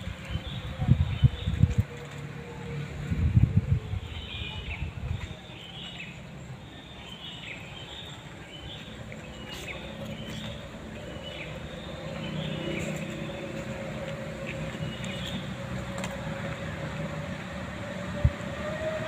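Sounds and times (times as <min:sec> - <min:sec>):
low outdoor rumble: 0:00.0 - 0:06.5, 0:08.2 - 0:19.0
birds chirping: 0:03.9 - 0:17.6.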